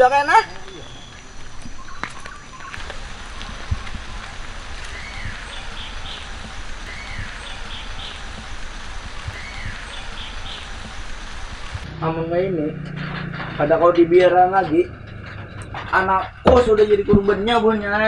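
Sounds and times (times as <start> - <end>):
steady background hiss: 0.0 - 12.7
bird whistling call: 4.8 - 8.3, 9.3 - 10.7.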